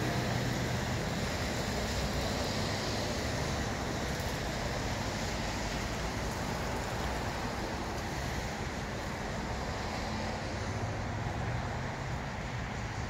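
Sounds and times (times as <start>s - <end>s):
car low rumble with hiss: 0.0s - 13.0s.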